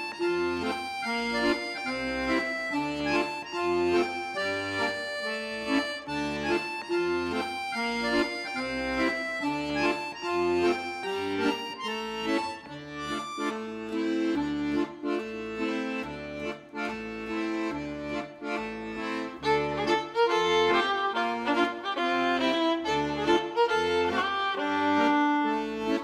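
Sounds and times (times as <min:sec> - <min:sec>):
lively instrumental music: 0:00.0 - 0:26.0.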